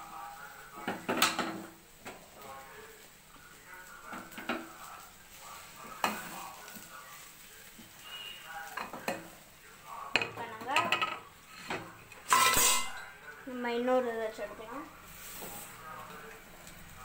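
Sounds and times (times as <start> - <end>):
wooden spatula scraping in a pan: 4.0 - 9.5, 15.0 - 16.0.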